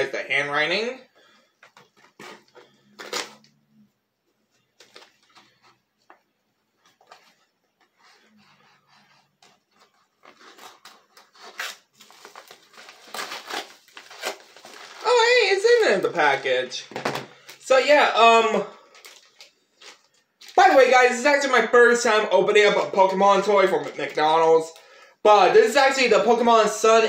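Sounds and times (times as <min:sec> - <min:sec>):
envelope being cut and torn: 0:02.0 - 0:03.4, 0:09.9 - 0:15.2
paper rustling: 0:04.5 - 0:16.4.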